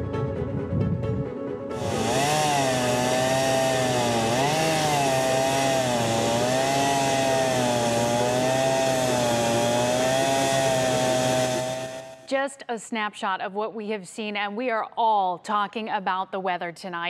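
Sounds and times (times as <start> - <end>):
chainsaw cutting into tree trunk: 1.8 - 12.3.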